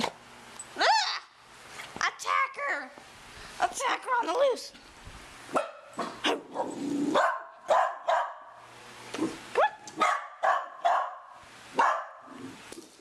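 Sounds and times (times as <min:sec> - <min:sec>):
puppy barking: 0:05.5 - 0:08.6, 0:09.6 - 0:12.3.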